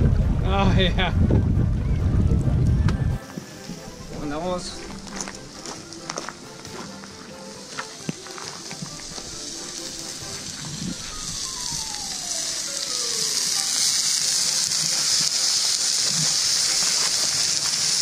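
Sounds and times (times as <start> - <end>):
wood fire crackling and hissing: 0.0 - 18.0.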